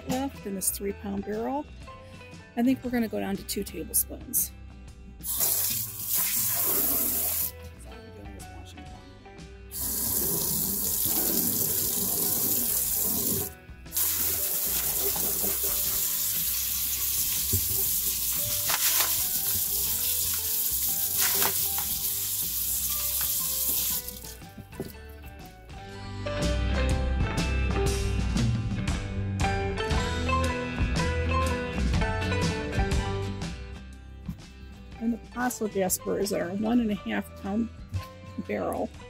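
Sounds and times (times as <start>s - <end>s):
water running from a tap into a sink: 5.2s - 7.5s, 9.7s - 24.9s.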